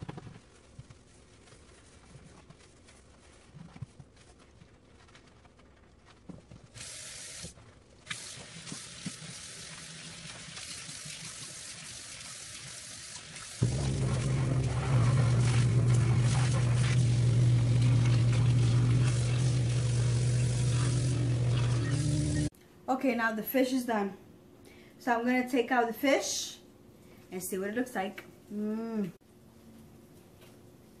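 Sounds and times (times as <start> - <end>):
tap water running into sink: 8.1 - 22.5
loud low hum: 13.6 - 22.5.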